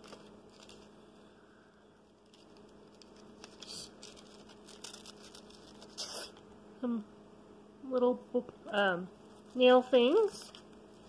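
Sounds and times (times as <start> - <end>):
plastic packaging rustling: 0.0 - 6.5, 9.2 - 11.0
low steady hum: 0.0 - 11.0.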